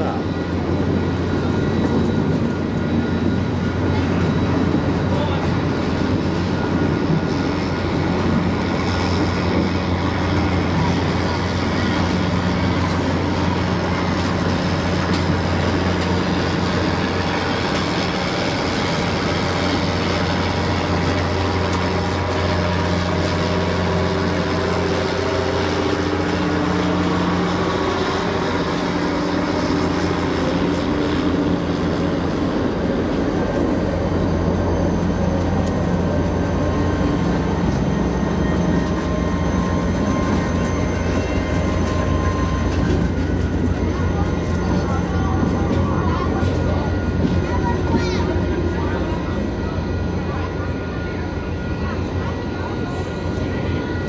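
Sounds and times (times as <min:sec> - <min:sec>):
locomotive low hum: 0:00.0 - 0:54.0.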